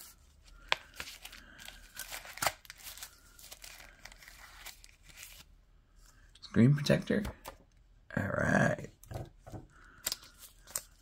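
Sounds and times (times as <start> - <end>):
packaging packet crinkling and tearing: 0.0 - 5.6, 9.9 - 11.0.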